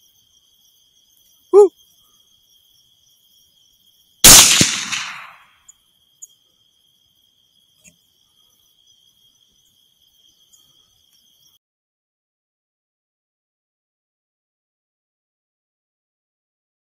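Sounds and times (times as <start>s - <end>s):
high insect trill: 0.0s - 11.6s
rifle shot: 4.2s - 5.5s.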